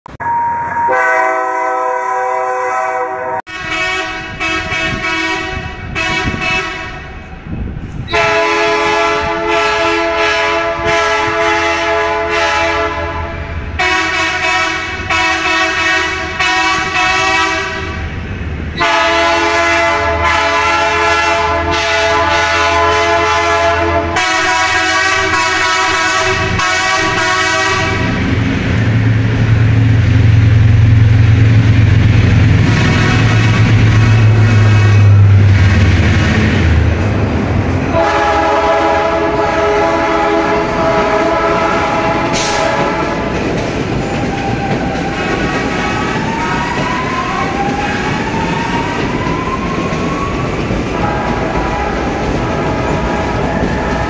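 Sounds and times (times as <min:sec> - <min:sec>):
electric train horn blasts: 0:00.1 - 0:07.2, 0:08.1 - 0:18.1, 0:18.8 - 0:28.3, 0:32.6 - 0:35.6, 0:37.9 - 0:43.3, 0:51.0 - 0:54.0
low train motor hum: 0:03.6 - 0:54.0.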